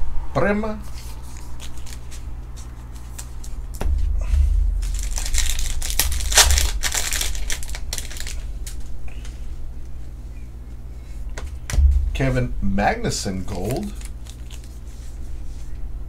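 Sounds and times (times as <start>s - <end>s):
wrapper tearing and crinkling: 1.3s - 2.2s, 4.7s - 8.9s, 13.5s - 15.1s
cards clicking and rustling: 1.3s - 3.6s, 4.8s - 8.9s, 13.5s - 15.1s.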